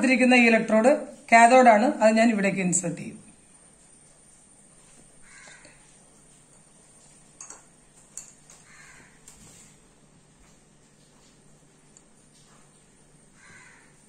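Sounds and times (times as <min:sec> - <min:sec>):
room hiss: 0:00.0 - 0:14.0
faint crow cawing: 0:05.2 - 0:05.9, 0:08.5 - 0:09.6, 0:13.3 - 0:14.0.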